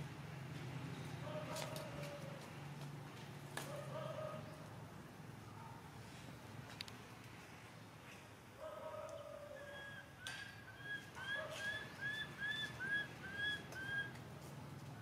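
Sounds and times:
bird whistling: 9.6s - 14.2s.

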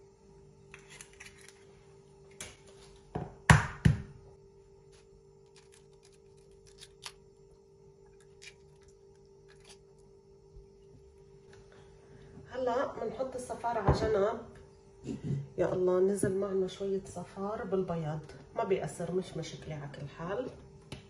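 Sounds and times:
eggshell clicks and crackles: 5.4s - 10.1s.

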